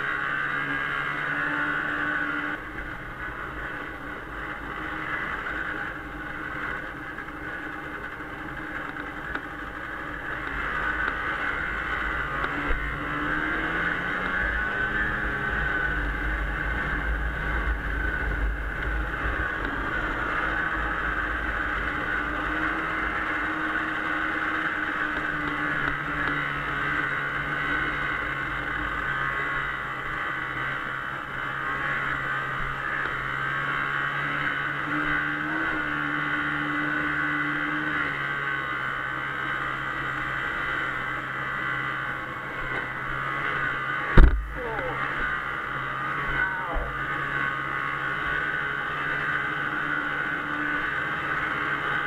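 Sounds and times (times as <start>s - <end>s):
snowmobile engine running: 0.0s - 52.0s
loud thump: 44.2s - 44.5s
low rumble: 44.2s - 45.0s.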